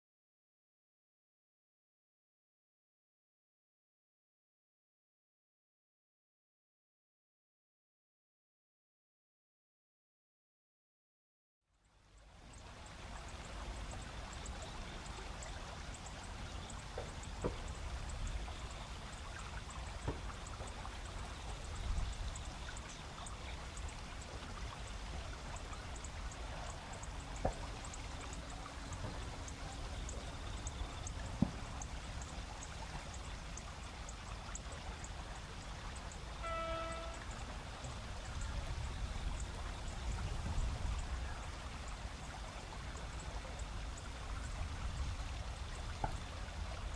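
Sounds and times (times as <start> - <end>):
insects chirping: 12.2 - 40.2
brief pitched call: 36.4 - 37.3.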